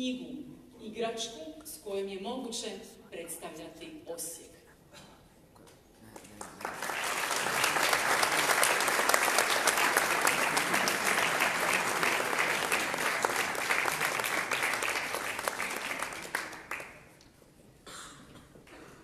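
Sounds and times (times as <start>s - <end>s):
audience applauding: 6.2s - 17.2s.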